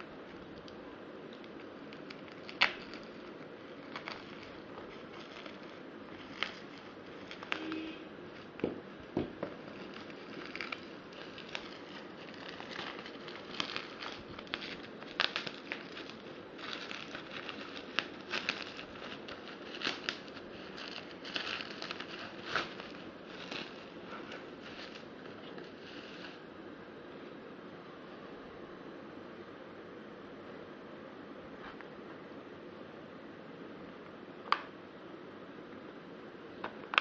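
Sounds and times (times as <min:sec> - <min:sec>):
packaging crinkling and rustling: 0:01.4 - 0:26.4.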